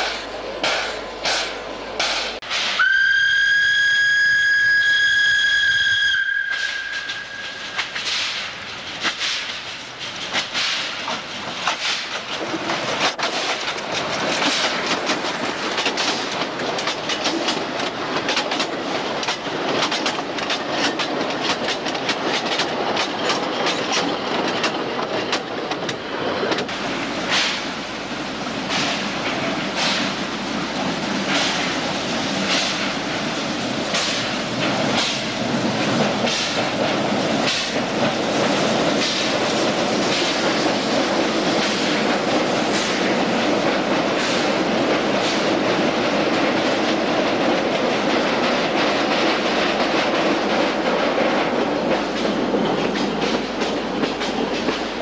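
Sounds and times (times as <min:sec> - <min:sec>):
train wheels clicking over rails: 0:00.0 - 0:02.9, 0:05.2 - 0:55.0
train whistle blast: 0:02.6 - 0:08.0.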